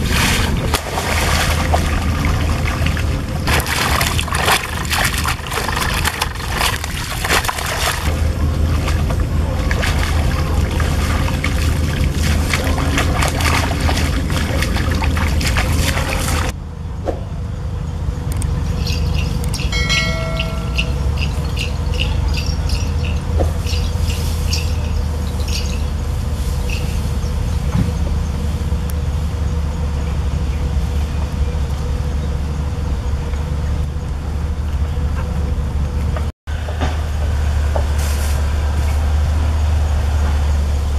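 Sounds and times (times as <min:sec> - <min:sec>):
muddy water splashing: 0:00.0 - 0:16.6, 0:18.4 - 0:35.5
wind rumble on microphone: 0:00.0 - 0:16.6
short high chirps: 0:18.8 - 0:24.9.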